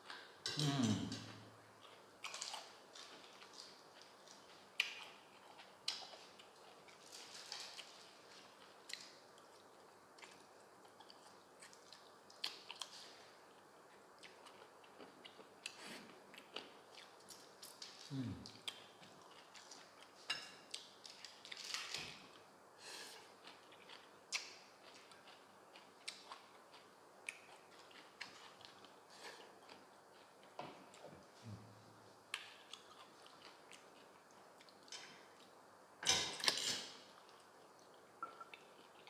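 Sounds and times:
wet chewing and smacking: 0:01.8 - 0:18.0.

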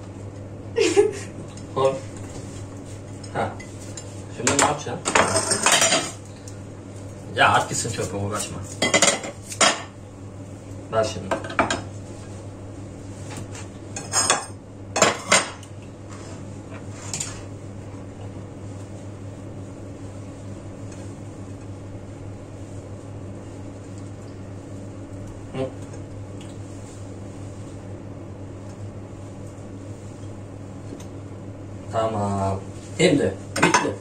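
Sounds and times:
steady low hum: 0:00.0 - 0:34.0
kitchenware clinking and clanking: 0:04.5 - 0:06.2, 0:08.8 - 0:09.9, 0:33.5 - 0:34.0.

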